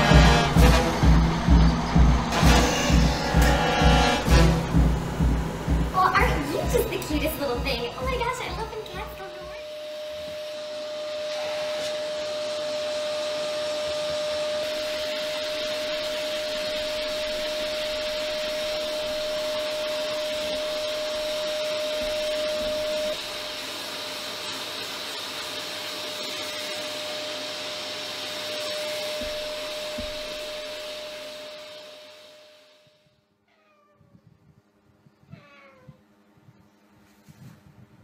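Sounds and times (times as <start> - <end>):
vacuum cleaner running: 0.0 - 33.2
airflow whistle: 9.6 - 24.3, 25.3 - 33.0.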